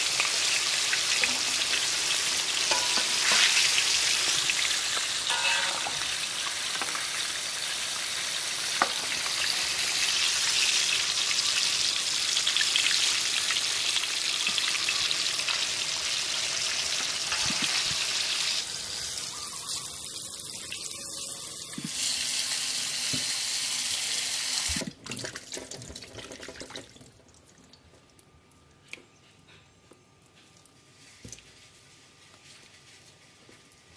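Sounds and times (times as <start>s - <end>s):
oil sizzling in a wok: 0.0s - 24.8s.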